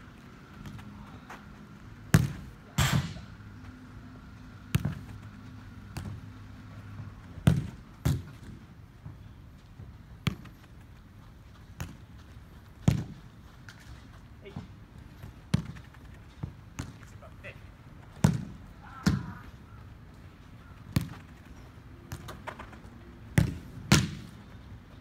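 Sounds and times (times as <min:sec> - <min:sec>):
soccer ball kicks on turf: 0:02.1 - 0:03.2, 0:04.6 - 0:17.3, 0:18.0 - 0:19.4, 0:20.9 - 0:21.4, 0:22.1 - 0:24.4.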